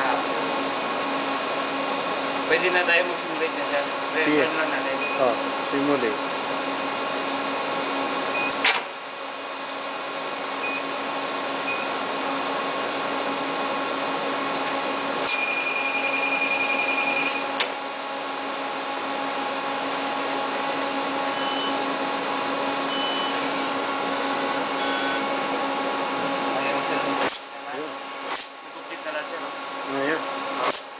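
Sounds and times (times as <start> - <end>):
machine motors whirring and humming: 21.2 - 28.5
rapid high-pitched pulsing tone: 24.8 - 25.2.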